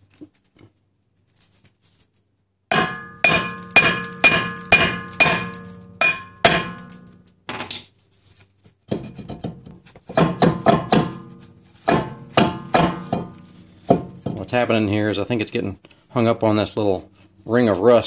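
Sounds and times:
hammer clanging on metal disc: 2.7 - 7.2, 8.9 - 14.6.

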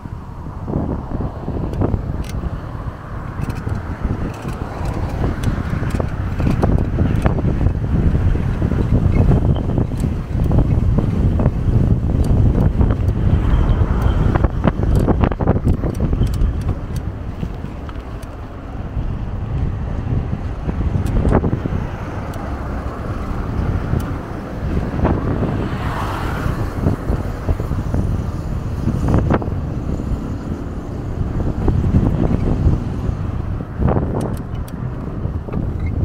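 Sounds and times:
road noise: 0.0 - 36.0
wind rumbling on microphone: 0.0 - 36.0.

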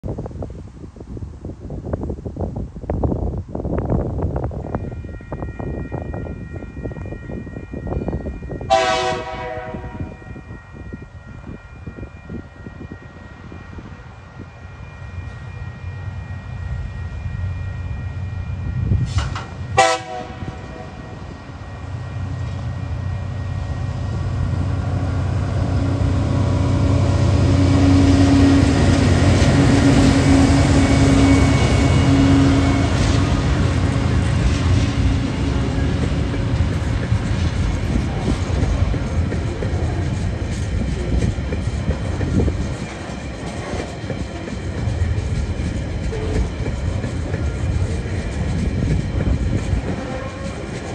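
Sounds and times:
locomotive engines humming: 3.9 - 50.9
train horn: 7.8 - 10.6, 18.2 - 22.6, 25.2 - 35.8, 49.8 - 50.9.

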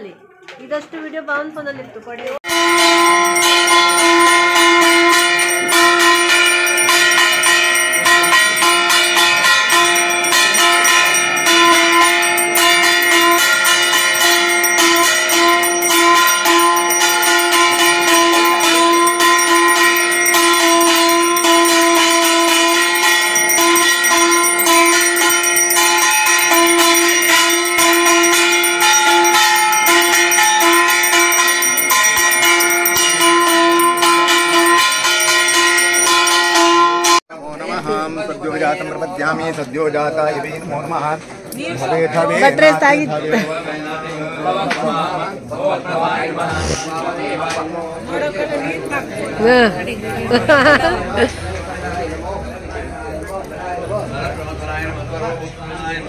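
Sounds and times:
metal bells rung rapidly: 2.4 - 37.2, 48.8 - 51.9.

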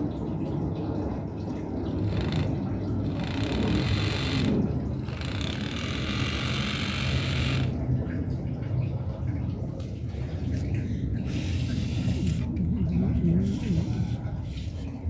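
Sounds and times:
steady low hum: 0.0 - 15.0
small motor and gears whirring: 2.0 - 7.7.

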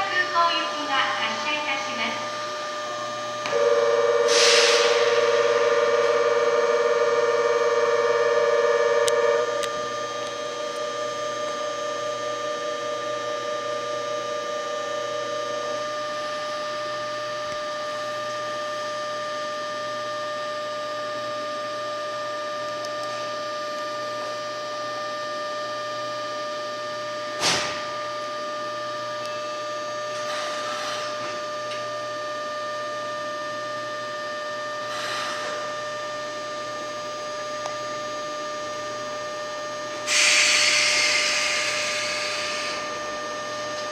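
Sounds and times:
train electrical whine and hum: 0.0 - 43.9
short sharp noise burst: 4.1 - 6.3.

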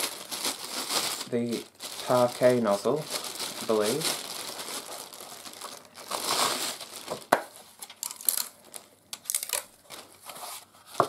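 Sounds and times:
plastic packaging crinkling: 0.0 - 10.4
cardboard rustling and scraping: 9.9 - 11.0.

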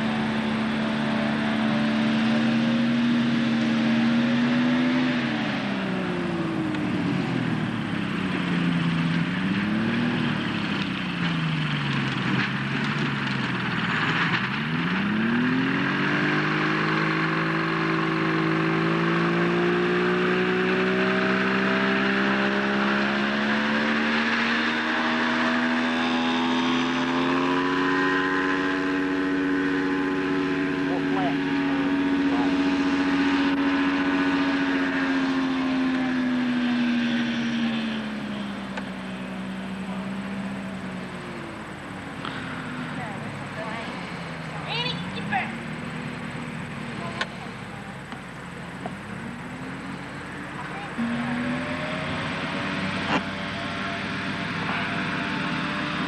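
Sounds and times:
aircraft engine and propeller: 0.0 - 56.0.

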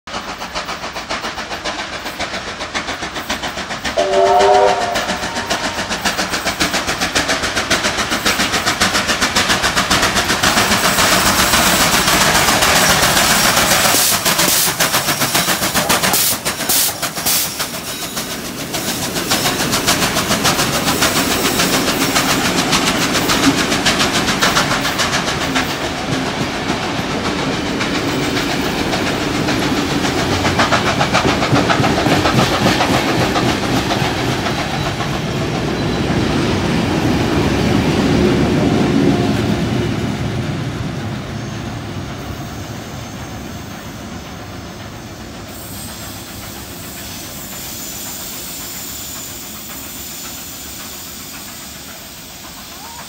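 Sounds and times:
carriage wheels clacking on rails: 0.1 - 38.2, 42.0 - 53.0
locomotive clattering past: 0.1 - 53.0
steam locomotive whistle: 4.0 - 6.0.

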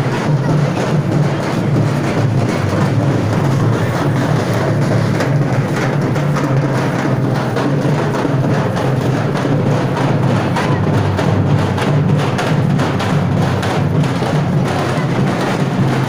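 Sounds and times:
rapid loud drumming: 0.0 - 16.0.

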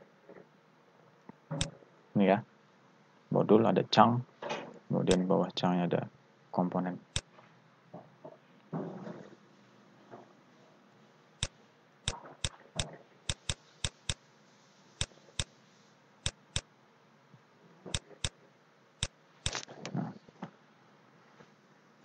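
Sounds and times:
stylus clicking on screen: 12.1 - 14.2, 16.2 - 16.6, 17.9 - 18.3.

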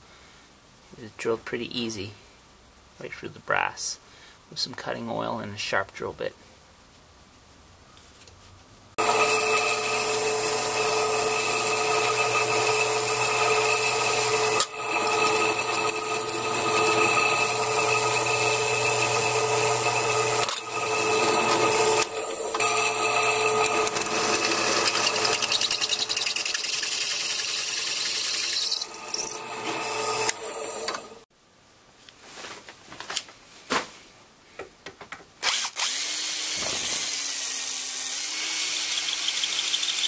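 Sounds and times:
drill press drilling metal pipe: 9.0 - 31.2.

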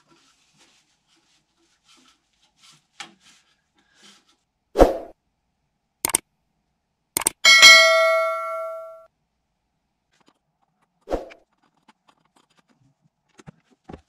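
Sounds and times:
notification bell ding: 7.5 - 9.1.

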